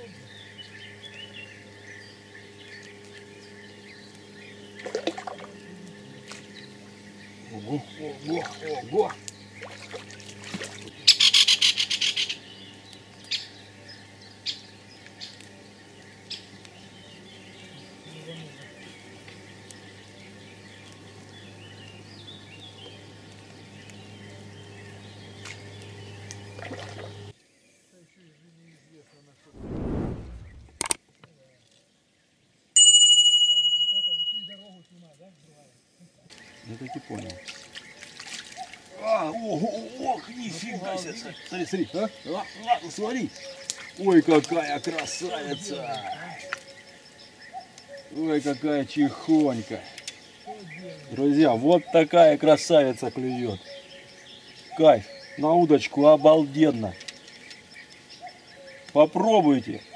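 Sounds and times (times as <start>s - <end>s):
small birds chirping: 0.0s - 32.7s, 34.0s - 59.9s
steady low hum: 29.6s - 30.9s.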